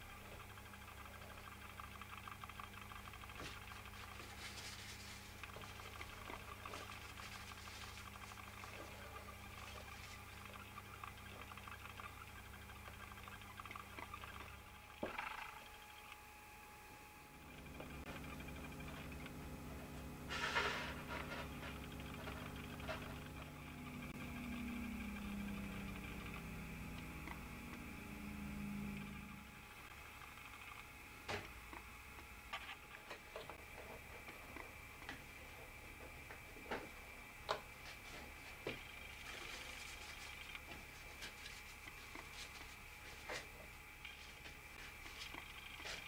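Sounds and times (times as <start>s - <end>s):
low mechanical hum: 0.0s - 46.0s
faint high whine: 3.4s - 35.7s.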